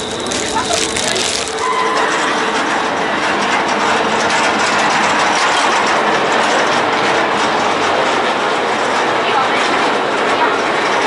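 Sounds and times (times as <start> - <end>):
rushing water: 0.0 - 2.6
ferry running noise: 0.0 - 11.0.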